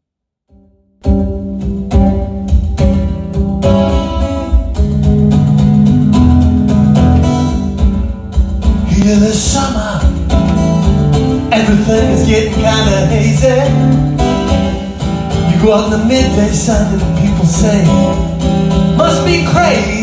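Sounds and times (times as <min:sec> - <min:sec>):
acoustic guitar strumming: 0:00.5 - 0:20.0
person singing: 0:08.8 - 0:20.0.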